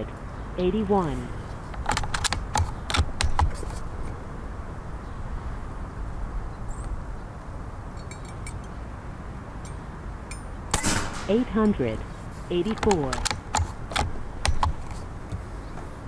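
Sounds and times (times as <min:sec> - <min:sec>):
air rifle bolt clicking: 0:01.7 - 0:03.7, 0:12.7 - 0:15.4.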